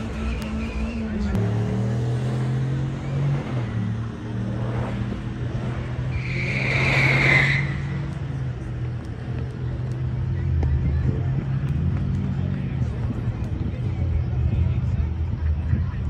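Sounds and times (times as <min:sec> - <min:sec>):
car engines idling: 0:00.0 - 0:16.0
tire squeal: 0:05.6 - 0:08.4.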